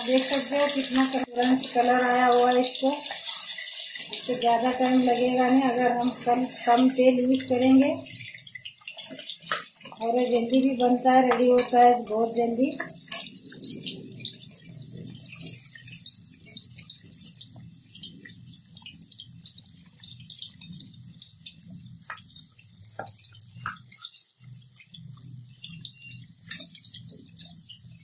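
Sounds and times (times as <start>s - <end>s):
meat sizzling in hot oil: 0.0s - 28.0s
metal spatula clicking on pan: 11.2s - 11.9s.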